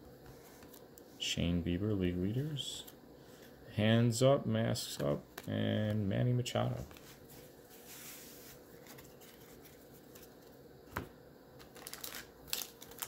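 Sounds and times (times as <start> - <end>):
soft rubbing of cards: 0.2 - 1.3, 6.6 - 10.5.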